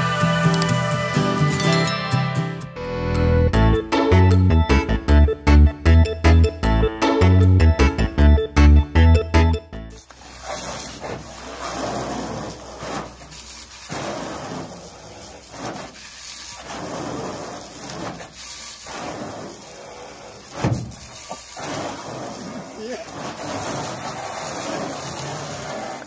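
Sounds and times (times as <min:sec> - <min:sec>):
piano music: 0:01.3 - 0:10.0
hose water spray hissing: 0:10.0 - 0:26.0
thump: 0:20.5 - 0:21.0.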